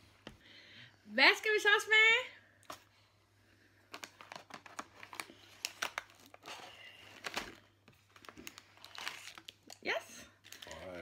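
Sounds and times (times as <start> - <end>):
candy wrappers crinkling: 3.8 - 11.0.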